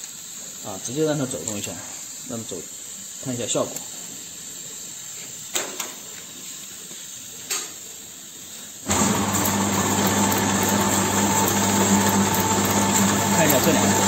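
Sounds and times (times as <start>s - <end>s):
burner flames hissing: 0.0s - 8.9s
machine motor hum: 8.9s - 14.0s
chain conveyor ticking: 9.0s - 14.0s.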